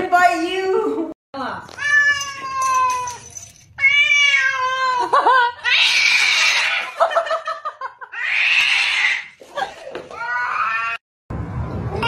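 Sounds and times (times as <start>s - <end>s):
cat yowling: 3.8s - 7.0s, 8.1s - 9.3s, 10.2s - 11.0s.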